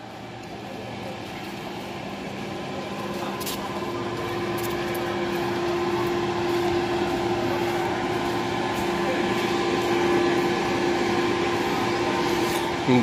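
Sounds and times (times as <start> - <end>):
mechanical hum with droning tone: 0.0 - 13.0.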